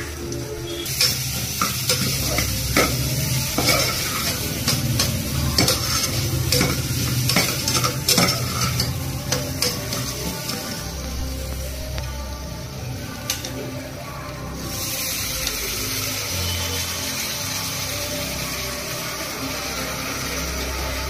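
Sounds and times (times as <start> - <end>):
food sizzling in oil: 0.0 - 21.0
spoon scraping a pressure cooker: 3.6 - 10.7.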